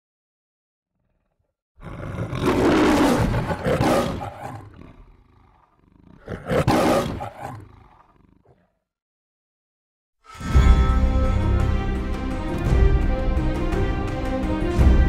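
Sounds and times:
lion roaring: 1.0 - 8.8
lion growling: 1.0 - 8.9.

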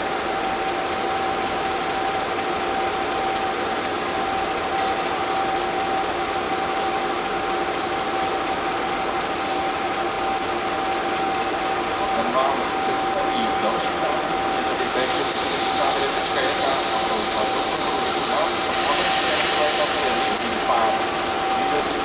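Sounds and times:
diesel locomotive engine idling: 0.0 - 22.0
steady high whine: 0.0 - 22.0.

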